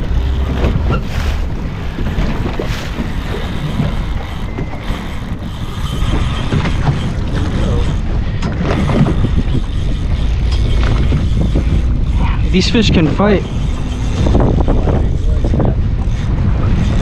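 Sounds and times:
water slapping against boat hull: 0:00.0 - 0:12.0
wind buffeting microphone: 0:00.0 - 0:17.0.

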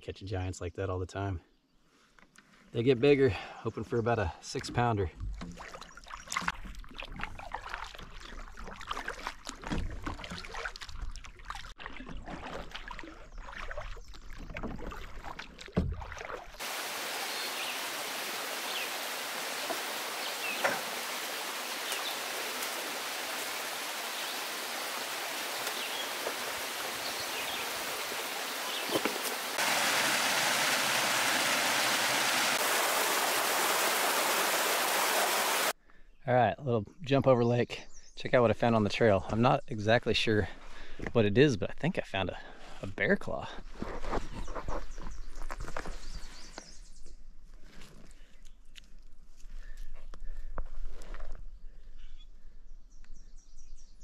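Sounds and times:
knocks and rumbles on canoe: 0:05.1 - 0:16.7, 0:19.6 - 0:21.2, 0:24.0 - 0:31.5
water splashing: 0:05.3 - 0:35.8
water cascading over rock: 0:16.6 - 0:35.8.

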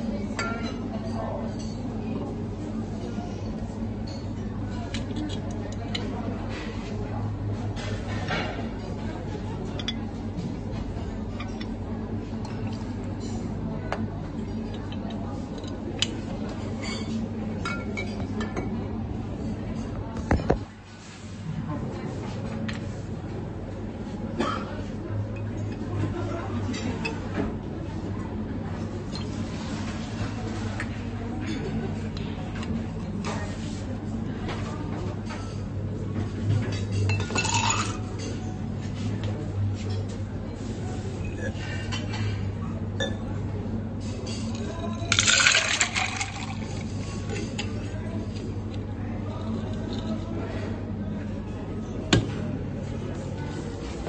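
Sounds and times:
faint background voices: 0:00.0 - 0:54.0
liquid pouring and splashing: 0:45.1 - 0:46.8.

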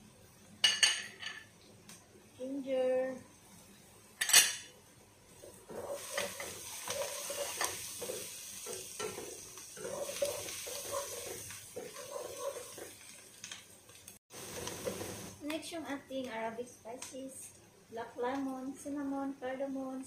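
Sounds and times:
onions sizzling in oil: 0:02.4 - 0:16.5
wooden spoon stirring in pot: 0:05.4 - 0:15.4.

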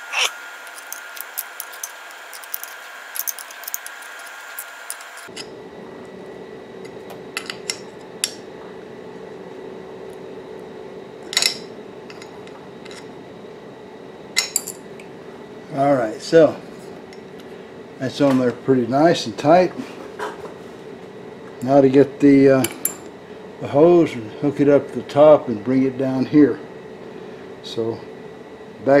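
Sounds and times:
steady background hum: 0:00.0 - 0:29.0
wrench clinking against metal: 0:00.2 - 0:05.3.

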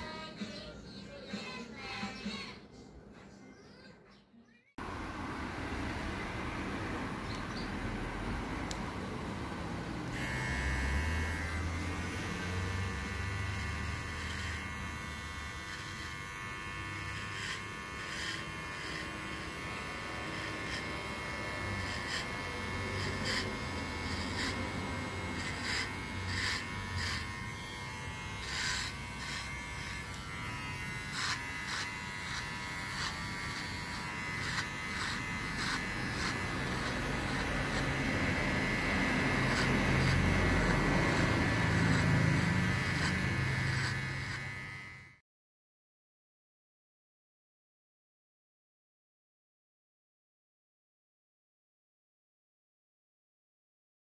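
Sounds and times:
electric hair clipper buzzing: 0:04.8 - 0:45.2.

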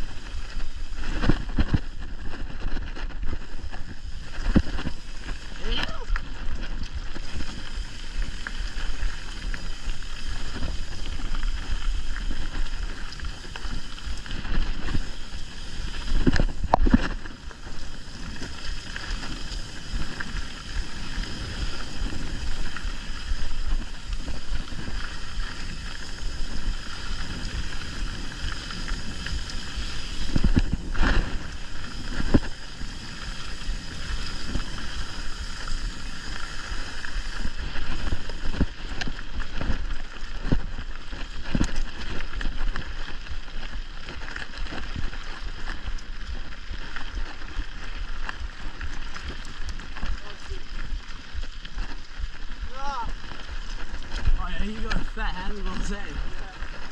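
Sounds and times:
wind on microphone: 0:00.0 - 0:44.0
tyres rolling on dirt: 0:00.2 - 0:56.9.

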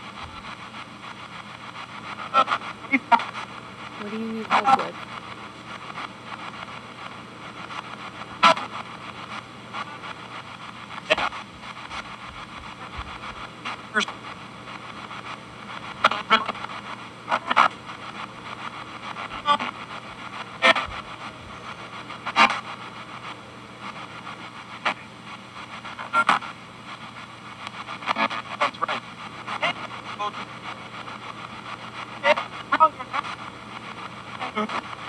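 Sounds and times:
clipped broadcast audio fragments: 0:00.0 - 0:35.0
radio static hiss: 0:00.0 - 0:35.0.

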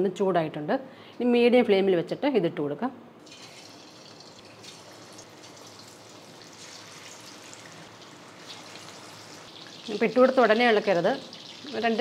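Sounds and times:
chicken sizzling in hot oil: 0:03.2 - 0:12.0.

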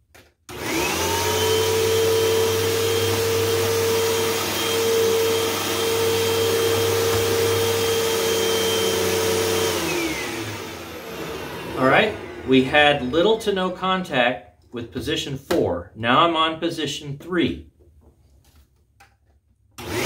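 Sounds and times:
vacuum cleaner whining: 0:00.5 - 0:14.1, 0:19.8 - 0:20.0.

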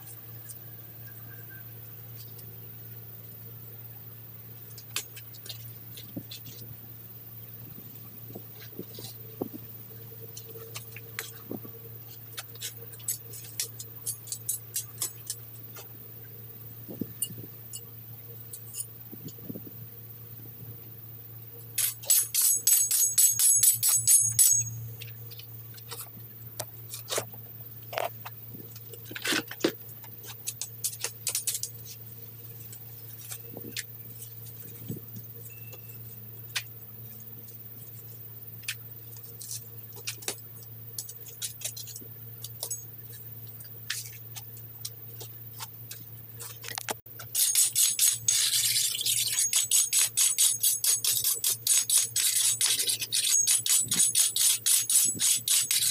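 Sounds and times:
steady low hum: 0:00.0 - 0:55.9
metal scraper on bricks: 0:21.8 - 0:24.8, 0:47.2 - 0:55.9.

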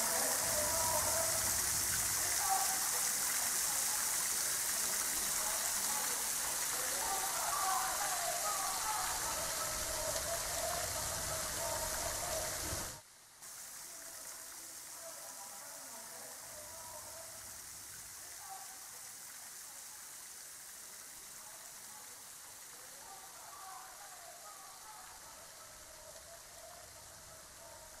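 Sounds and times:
fountain splashing into pond: 0:00.0 - 0:28.0.

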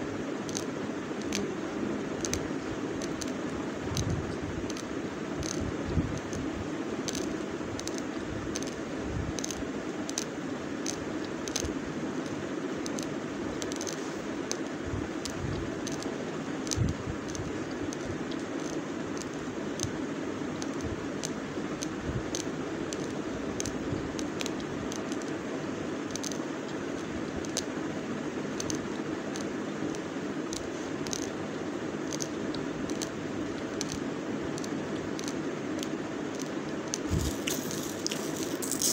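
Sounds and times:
steady hiss: 0:27.8 - 0:38.9
rice crunching while chewed: 0:37.0 - 0:38.9.

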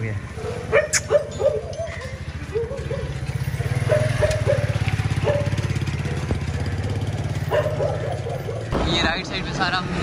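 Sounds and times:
small engine idling: 0:01.9 - 0:08.7.

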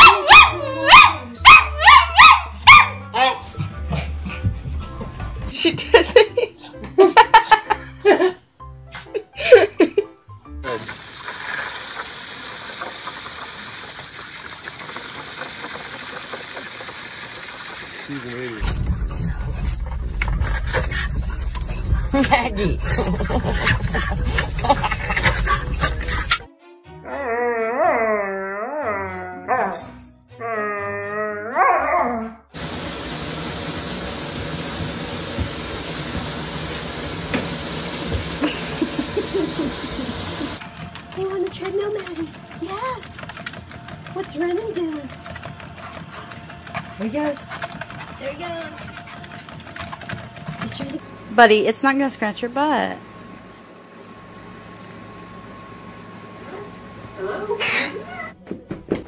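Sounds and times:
dog howling: 0:00.0 - 0:02.5
bath tap running into tub: 0:10.6 - 0:18.6, 0:32.6 - 0:43.0
spraying water hiss: 0:10.7 - 0:18.6, 0:32.6 - 0:40.6
dog splashing in spray: 0:32.6 - 0:40.6.

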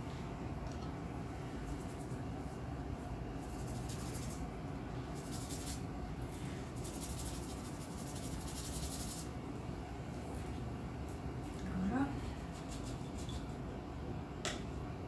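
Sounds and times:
low room hum: 0:00.0 - 0:15.0
paintbrush scrubbing on paper: 0:03.4 - 0:04.4, 0:05.1 - 0:09.3, 0:12.4 - 0:13.5.

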